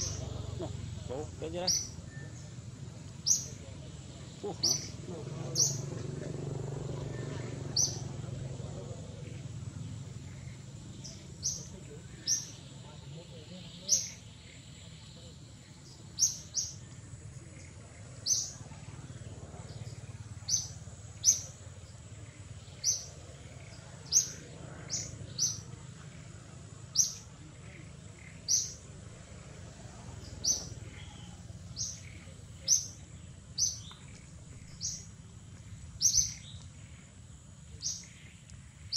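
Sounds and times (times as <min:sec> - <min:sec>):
bird chirping: 0:00.0 - 0:06.1, 0:06.8 - 0:38.9.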